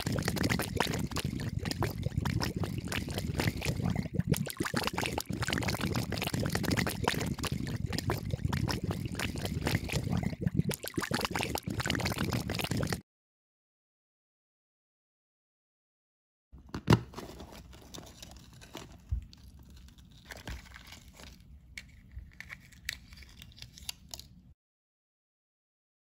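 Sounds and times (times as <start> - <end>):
fizzing bubbles crackling: 0.0 - 13.0
water pouring and trickling: 0.0 - 13.0.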